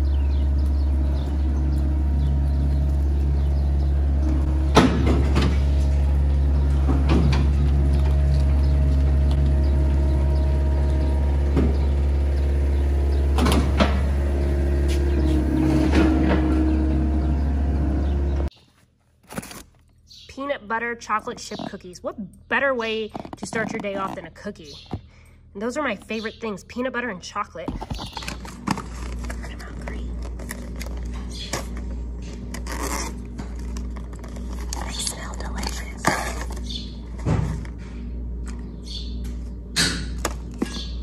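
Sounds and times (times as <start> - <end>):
farm machine engine idling: 0.0 - 18.5.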